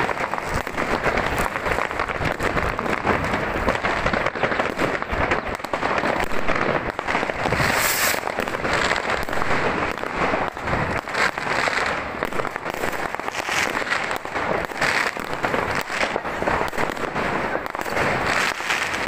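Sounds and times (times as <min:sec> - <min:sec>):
fireworks bangs and crackling: 0:00.0 - 0:19.0.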